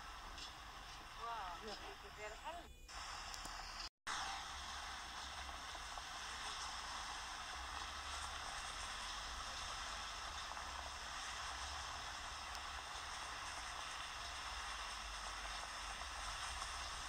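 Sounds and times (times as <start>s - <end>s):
fountain water hissing: 0.0s - 17.0s.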